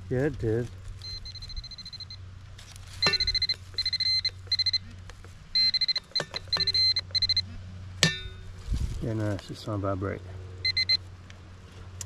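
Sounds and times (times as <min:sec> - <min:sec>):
pinpointer electronic tone and beeps: 0:01.0 - 0:02.2, 0:03.0 - 0:04.8, 0:05.5 - 0:07.4, 0:10.6 - 0:11.0.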